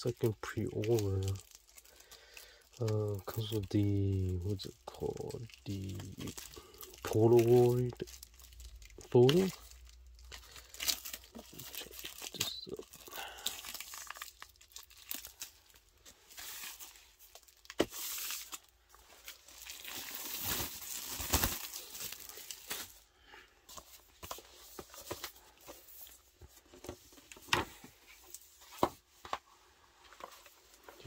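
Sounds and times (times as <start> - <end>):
paper wrapper tearing and crinkling: 2.8 - 23.0.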